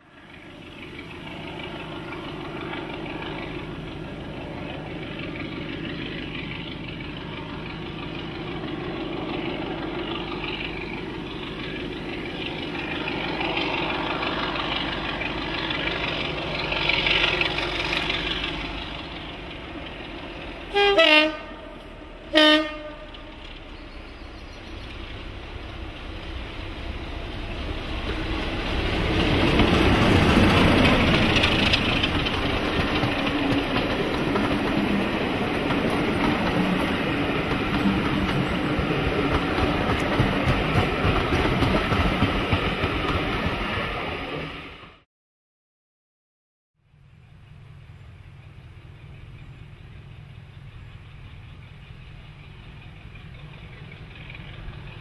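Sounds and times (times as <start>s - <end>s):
diesel locomotive engine: 0.0s - 45.0s, 46.9s - 55.0s
train horn blasts: 20.7s - 23.5s.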